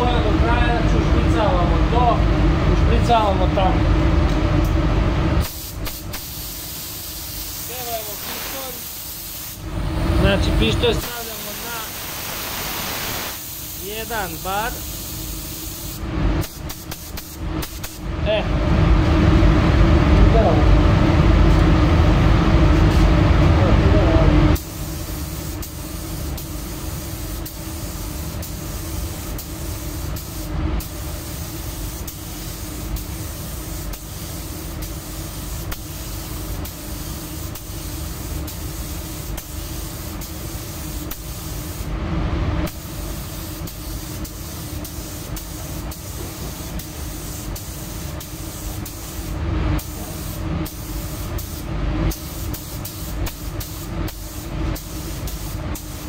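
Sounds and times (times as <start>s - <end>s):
paint spray gun hissing: 5.4s - 9.7s, 10.9s - 18.0s, 24.6s - 41.9s, 42.8s - 56.0s.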